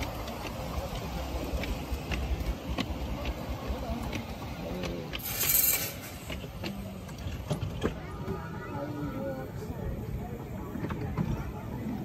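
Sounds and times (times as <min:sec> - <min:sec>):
steam hiss: 0:00.0 - 0:07.8
wheels clicking over rail joints: 0:00.0 - 0:12.0.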